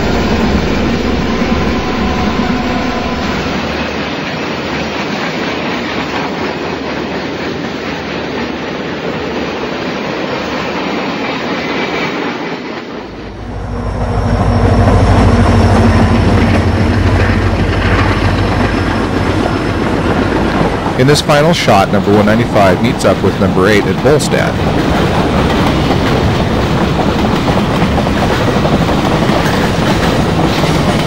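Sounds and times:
model train wheels rumbling on rails: 15.8 - 31.0.

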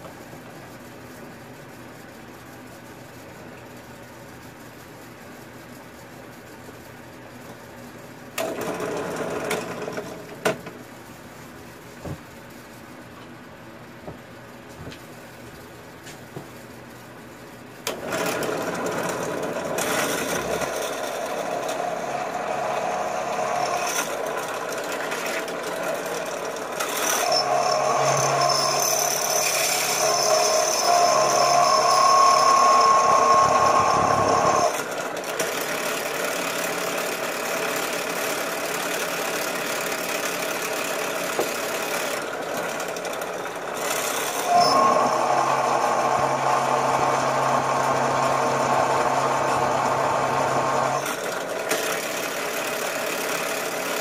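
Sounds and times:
electric drill boring into metal: 17.9 - 35.7, 40.2 - 53.1.

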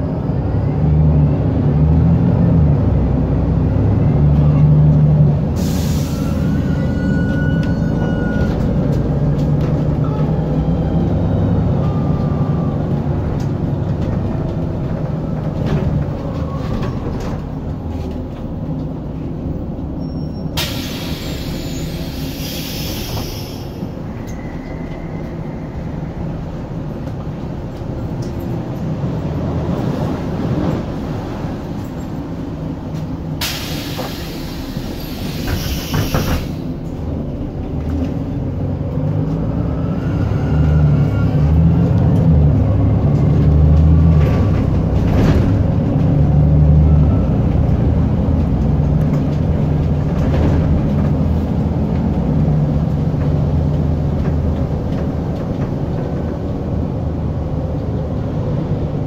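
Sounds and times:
bus diesel engine running: 0.0 - 59.0
compressed-air hiss: 20.6 - 23.9, 33.4 - 36.7.

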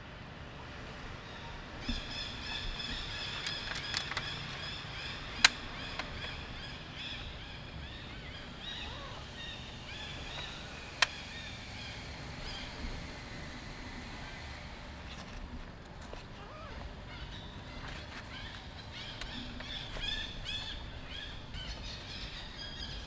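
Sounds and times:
high chirping animal calls: 1.3 - 12.8, 16.3 - 23.0
sharp clicks: 3.1 - 4.7.

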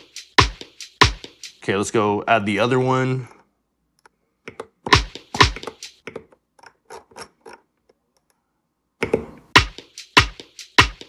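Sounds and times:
loud drum sample hits: 0.4 - 1.3.

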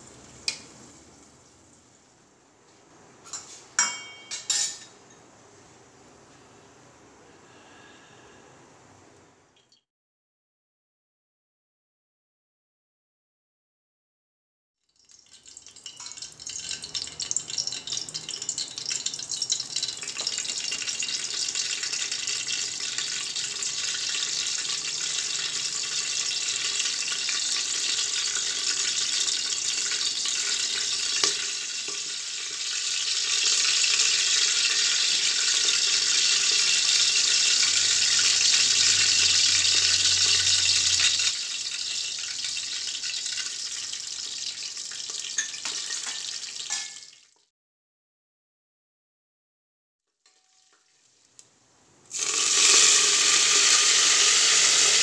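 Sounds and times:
oil sizzling in a pressure cooker: 0.0 - 2.0, 15.0 - 47.4, 50.3 - 55.0.

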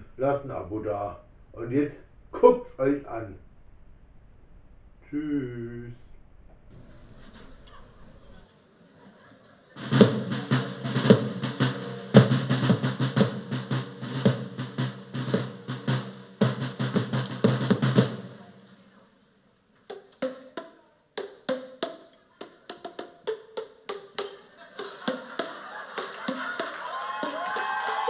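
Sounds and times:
rapid drumming with snare rolls: 9.8 - 18.8, 24.1 - 28.0.

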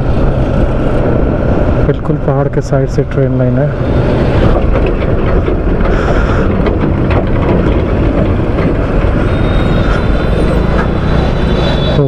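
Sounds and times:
engines and tyres on gravel: 0.0 - 12.0
knocks from bumps: 4.2 - 9.4.

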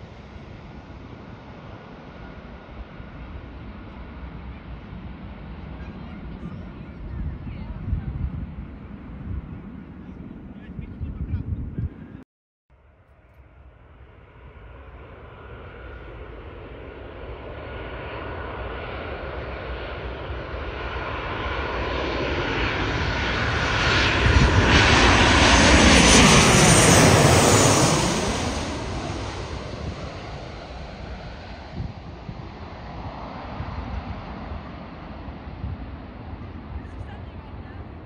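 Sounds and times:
jet airliner passing overhead: 0.0 - 12.2, 13.5 - 38.0.

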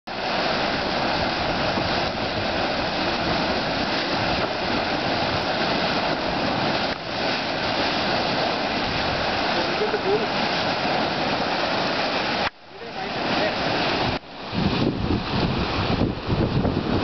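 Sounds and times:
water boiling and gurgling: 0.1 - 17.0.

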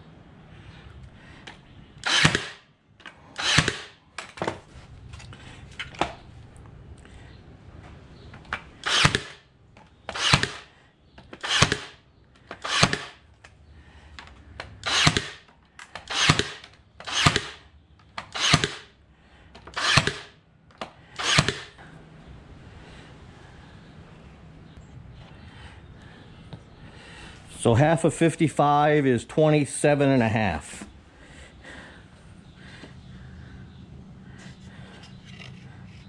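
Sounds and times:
stapler firing into wood: 2.0 - 4.5, 8.5 - 9.4, 10.1 - 13.2, 14.6 - 17.6, 18.2 - 18.9, 19.6 - 21.8.

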